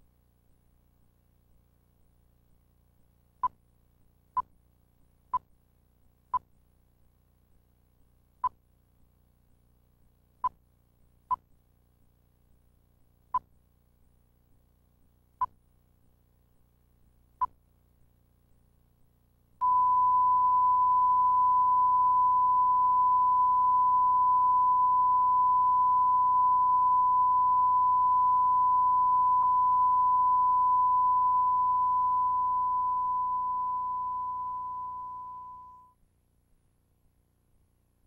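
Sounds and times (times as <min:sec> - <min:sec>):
faint low hum: 0:00.0 - 0:38.0
steady electronic test tone: 0:19.6 - 0:35.9
short electronic beep: 0:19.6 - 0:36.0.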